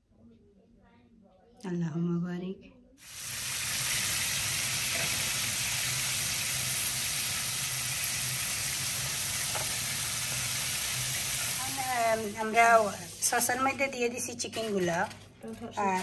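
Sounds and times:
wings sizzling in hot oil: 0:03.0 - 0:13.9.

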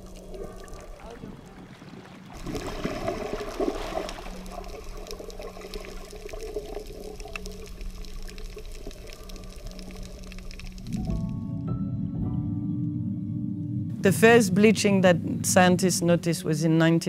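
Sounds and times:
underwater rush of water: 0:00.0 - 0:11.2
low steady hum: 0:00.0 - 0:17.0.

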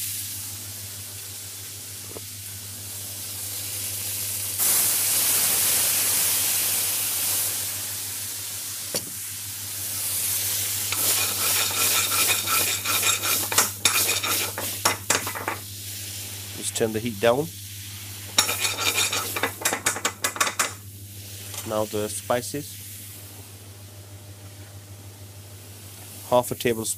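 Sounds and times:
loud sizzling hiss in a pan: 0:00.0 - 0:24.2, 0:25.0 - 0:26.9
metal ladle scraping a pan: 0:10.9 - 0:15.6, 0:18.4 - 0:20.7.

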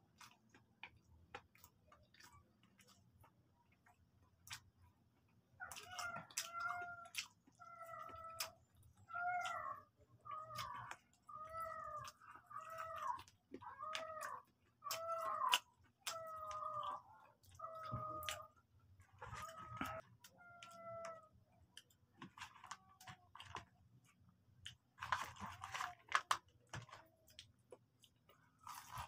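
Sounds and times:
crunchy chewing: 0:00.0 - 0:29.0
cat meowing: 0:05.6 - 0:08.5, 0:19.4 - 0:21.3.

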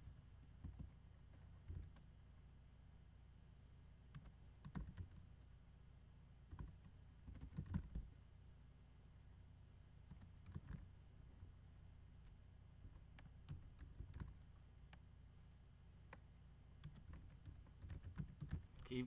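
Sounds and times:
keyboard typing: 0:00.1 - 0:02.1, 0:04.1 - 0:05.2, 0:06.5 - 0:08.1, 0:10.1 - 0:10.9, 0:12.8 - 0:14.5, 0:16.8 - 0:18.9.

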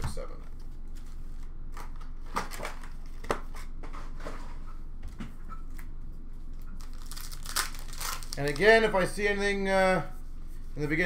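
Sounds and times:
foil wrappers rustling: 0:06.8 - 0:09.2.

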